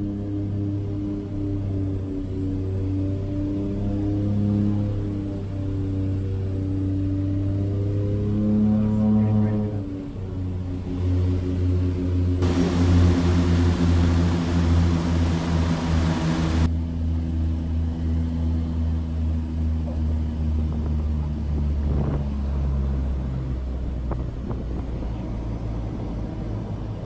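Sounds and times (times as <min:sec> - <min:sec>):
propeller plane engines droning: 0:00.0 - 0:27.0
loud rushing noise: 0:12.4 - 0:16.7.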